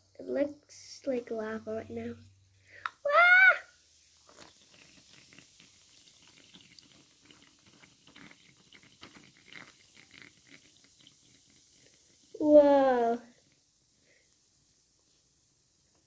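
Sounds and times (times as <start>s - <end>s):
wet foam crackles: 0.8s - 13.6s.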